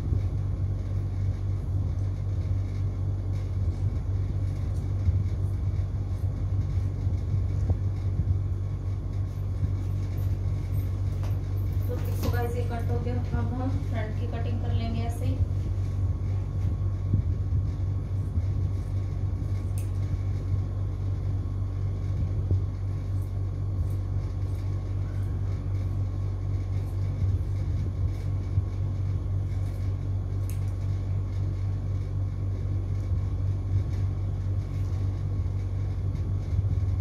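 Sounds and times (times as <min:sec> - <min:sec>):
steady low hum: 0:00.0 - 0:37.0
scissors cutting cloth: 0:29.4 - 0:30.9.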